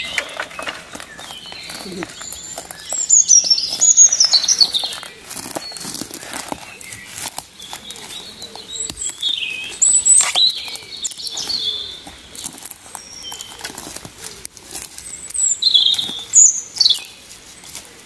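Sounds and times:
footsteps crunching on twigs: 0.0s - 18.0s
songbirds chirping: 0.0s - 18.0s
sticks and brush crackling: 0.0s - 18.0s.

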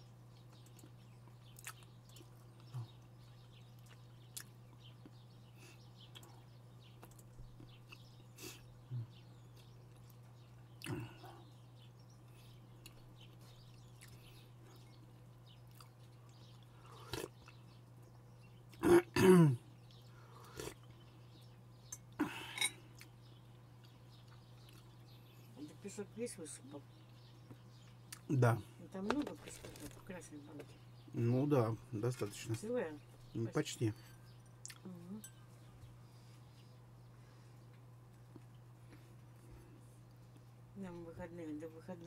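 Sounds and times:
person clearing throat: 18.8s - 19.6s
steady low hum: 30.0s - 42.0s.

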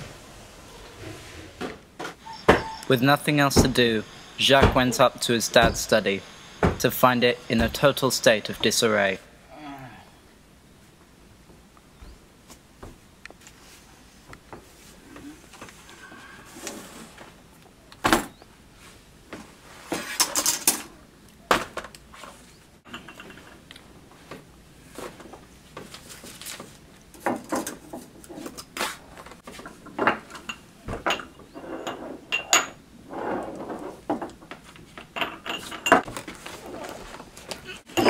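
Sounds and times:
small metal dishes clinking: 22.9s - 23.5s
paper rustling: 25.8s - 26.8s.

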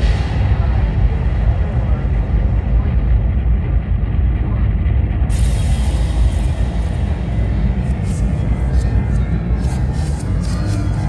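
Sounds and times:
deep rumbling sound effects: 0.0s - 11.0s
hiss: 5.3s - 9.3s.

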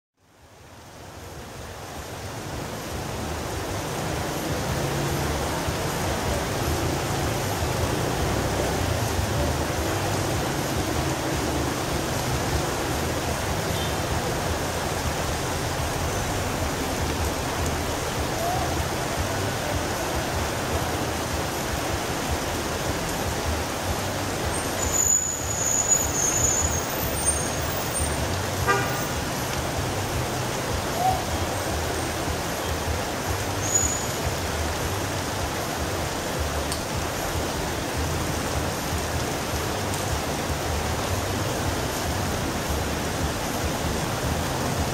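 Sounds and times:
steady rain: 0.2s - 44.9s
vehicles driving on wet road: 0.2s - 44.9s
short vehicle horn: 28.6s - 29.0s.

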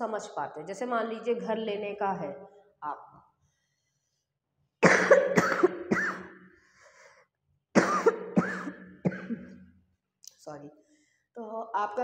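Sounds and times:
woman coughing: 4.8s - 6.3s, 7.8s - 9.6s.

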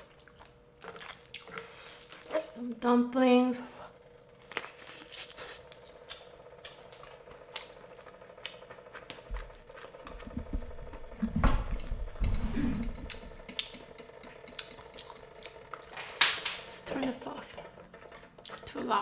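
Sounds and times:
chewing and slurping noodles: 0.0s - 2.5s, 4.0s - 11.2s, 12.3s - 16.0s, 17.7s - 19.0s
electric pot humming: 0.0s - 19.0s.

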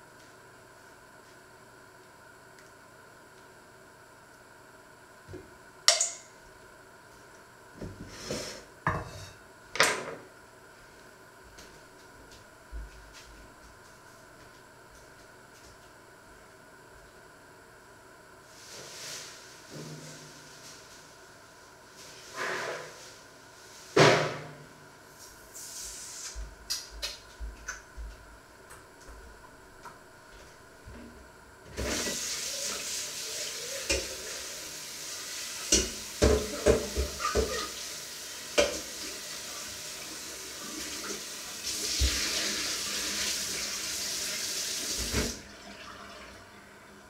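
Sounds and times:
dishes knocking and clattering: 35.7s - 37.7s.

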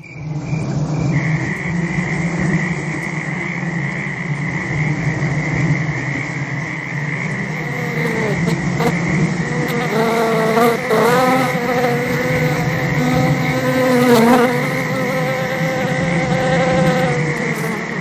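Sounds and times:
wavering buzzing tone: 0.0s - 18.0s.

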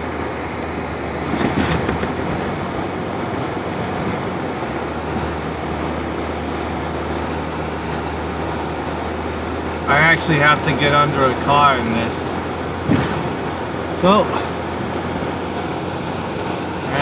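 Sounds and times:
car engine and tyre noise: 0.0s - 17.0s
low constant hum: 0.0s - 17.0s.

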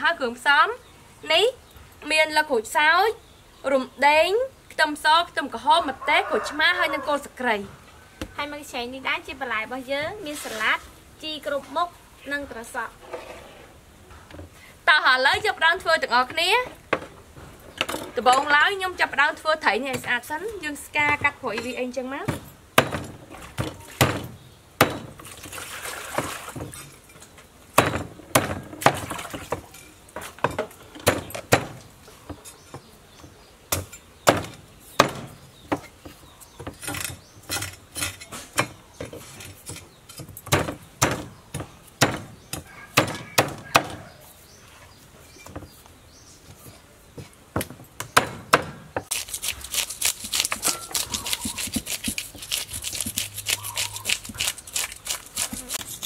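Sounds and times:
cleaver chopping fish on wood: 22.3s - 25.2s, 27.8s - 29.6s, 30.4s - 31.8s, 33.7s - 35.8s, 40.5s - 44.0s, 47.6s - 49.2s
scraper scraping fish scales: 49.1s - 56.0s.

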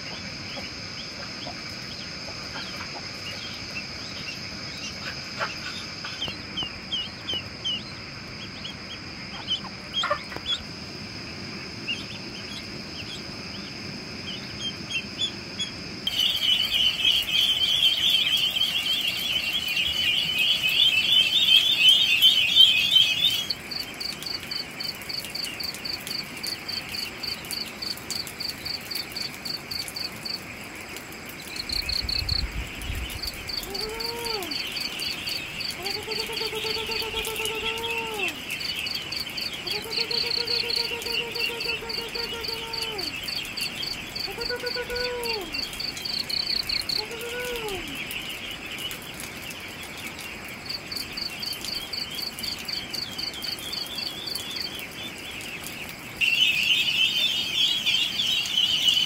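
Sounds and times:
ducklings peeping: 0.0s - 10.7s, 11.7s - 59.0s
high insect drone: 0.0s - 48.7s
night insects chirping: 0.0s - 59.0s.

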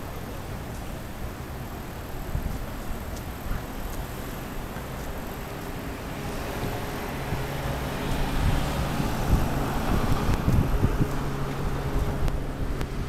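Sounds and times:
vehicle engine hum: 0.0s - 13.0s
wind rumbling on microphone: 0.0s - 13.0s.

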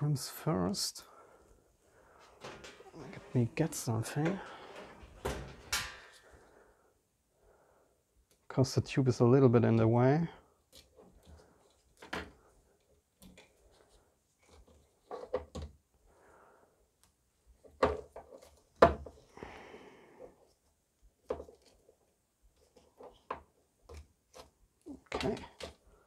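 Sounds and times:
plastic parts clicking and knocking: 17.6s - 19.2s.

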